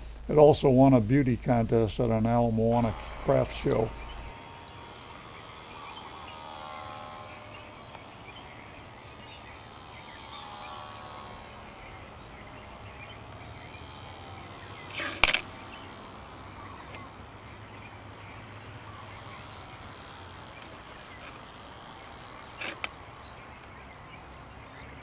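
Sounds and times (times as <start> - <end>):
model plane motor buzzing: 2.0 - 25.0
sharp click: 14.9 - 15.5.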